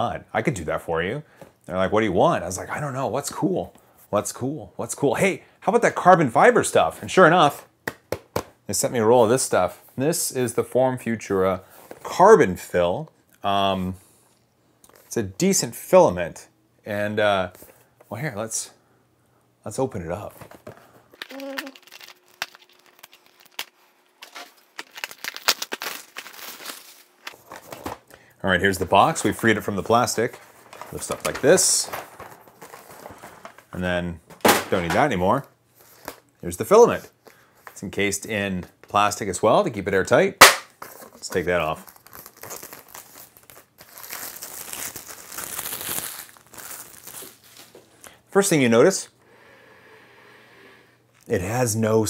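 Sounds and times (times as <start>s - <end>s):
plastic wrap crinkling: 21.1s - 28.2s, 29.0s - 33.8s, 40.9s - 47.9s.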